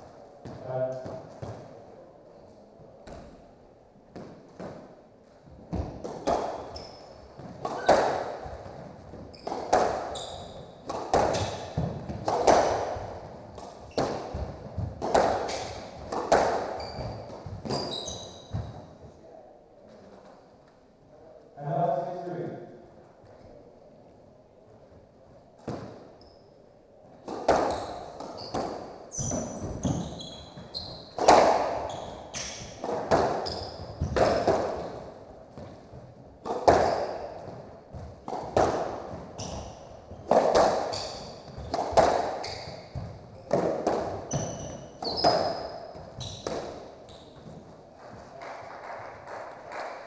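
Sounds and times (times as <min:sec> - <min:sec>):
shoes squeaking on court floor: 0:05.5 - 0:19.2, 0:25.6 - 0:26.6, 0:27.5 - 0:48.3
squash ball cracking off rackets: 0:07.4 - 0:17.9, 0:27.2 - 0:47.6.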